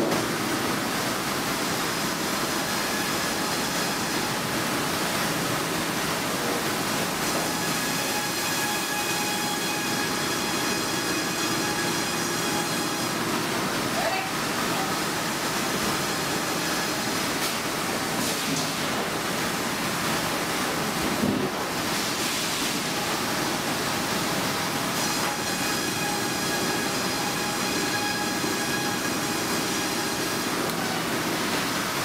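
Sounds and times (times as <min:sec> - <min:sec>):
machinery noise: 0:21.1 - 0:32.0.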